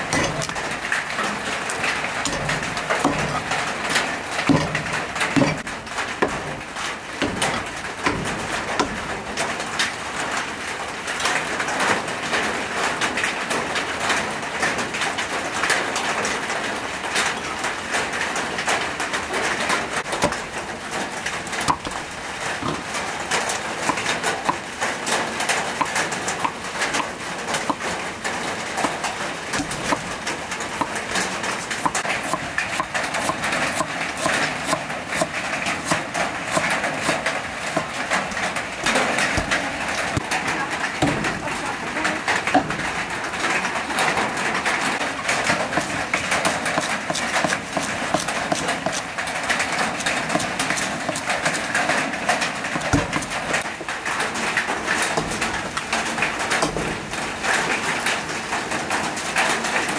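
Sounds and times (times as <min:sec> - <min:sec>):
cleaver striking chopping block: 0:02.3 - 0:03.5, 0:04.5 - 0:06.5, 0:20.2 - 0:20.4, 0:22.6 - 0:22.9, 0:25.8 - 0:27.1, 0:39.3 - 0:39.6, 0:52.8 - 0:53.4.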